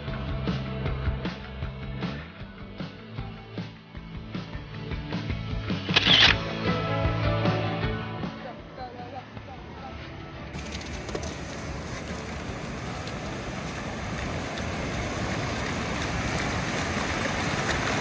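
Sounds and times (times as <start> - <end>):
ocean surf washing up beach: 10.6 - 18.0.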